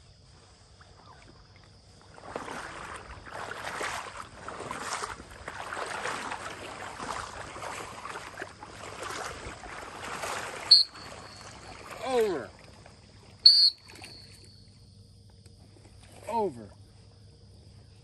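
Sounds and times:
insect buzz: 0.0s - 18.0s
splashing through marsh water: 0.4s - 14.6s.

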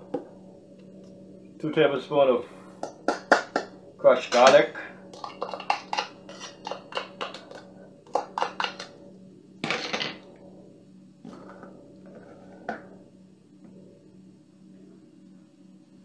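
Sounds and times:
spoon tapping plastic container: 5.2s - 8.9s.

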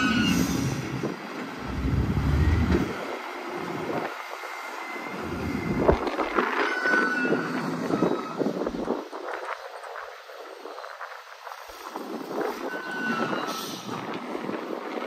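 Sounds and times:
short high squeal: 0.0s - 0.9s, 6.6s - 8.5s, 12.5s - 13.9s
diesel engine rumbling: 0.0s - 4.0s.

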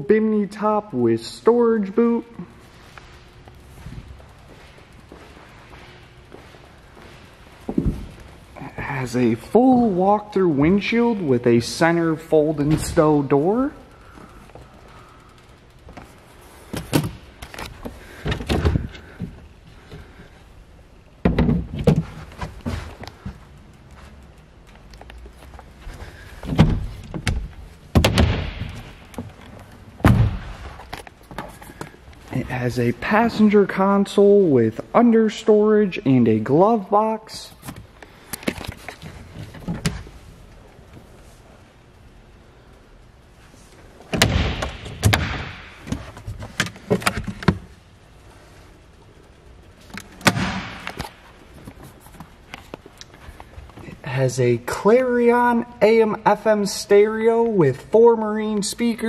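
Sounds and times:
sharp knocks of storage door: 26.6s - 29.0s, 30.0s - 30.5s, 44.2s - 46.1s.

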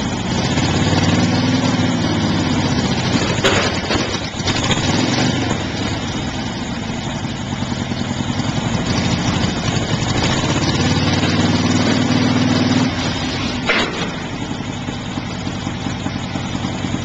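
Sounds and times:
snowcat engine: 0.0s - 17.0s
trailer bed clank: 13.6s - 14.6s.

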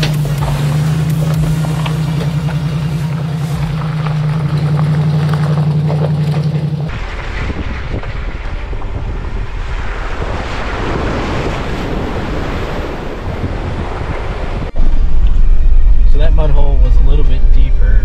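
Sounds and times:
vehicle engine droning: 0.0s - 18.0s
wind rushing: 6.9s - 18.0s.

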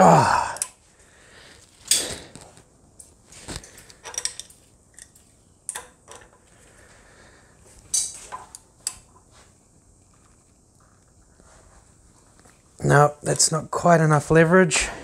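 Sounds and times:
wrench clinking on metal: 3.7s - 6.4s.

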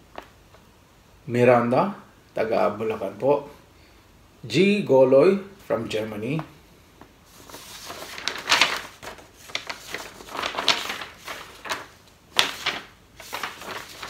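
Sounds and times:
paper rustling: 7.2s - 14.0s.

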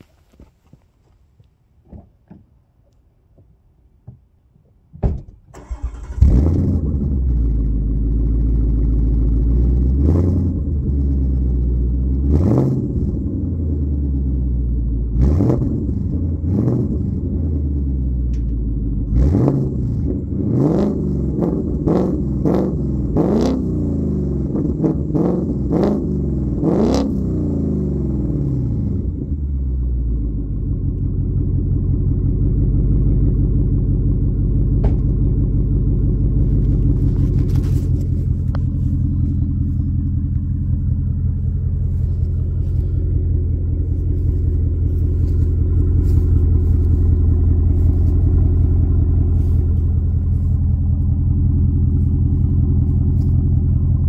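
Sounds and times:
car engine starting: 5.4s - 54.0s
car engine idling: 5.5s - 12.4s, 17.2s - 19.2s, 27.4s - 54.0s
engine revving in blips: 5.6s - 7.6s, 9.6s - 11.0s, 12.2s - 13.5s, 15.1s - 17.9s, 19.0s - 29.3s.

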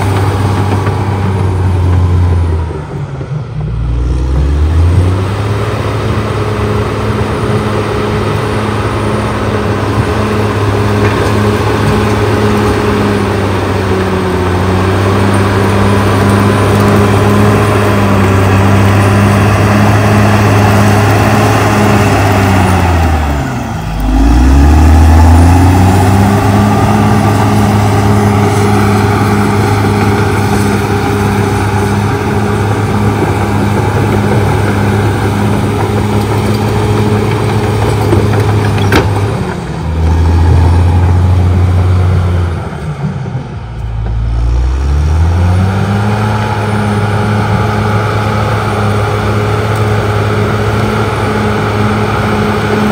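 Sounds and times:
bulldozer diesel engine under load: 0.0s - 52.9s.

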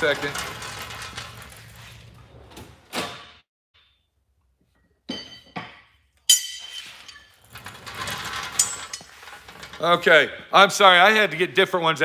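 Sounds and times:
metal hammers clinking: 5.1s - 7.4s.

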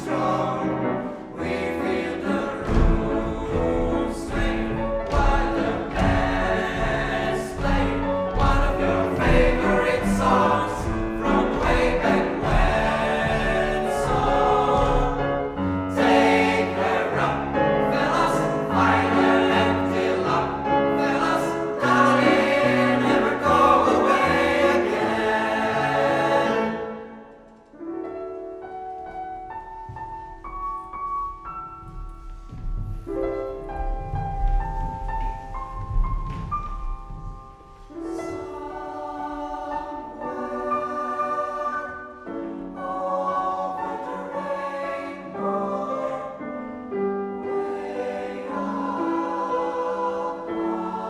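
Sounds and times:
boys' choir singing: 0.0s - 27.2s, 37.9s - 46.5s, 47.4s - 51.0s.

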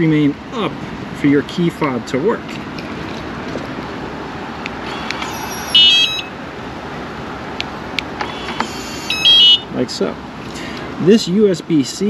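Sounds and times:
short electronic beep: 5.3s - 6.3s, 9.1s - 9.7s.

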